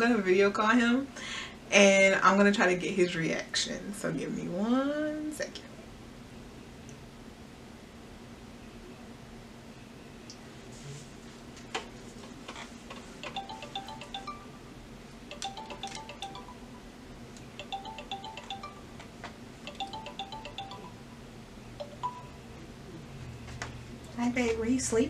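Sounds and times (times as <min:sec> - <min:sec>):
phone ringtone chime: 0:13.2 - 0:14.7, 0:15.3 - 0:22.4.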